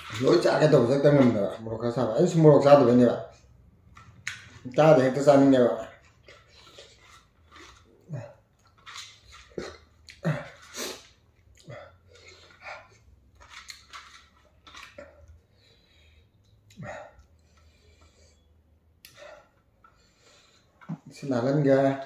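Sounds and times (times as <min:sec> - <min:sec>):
chewing and smacking mouth sounds: 0:03.4 - 0:04.8, 0:05.8 - 0:18.1.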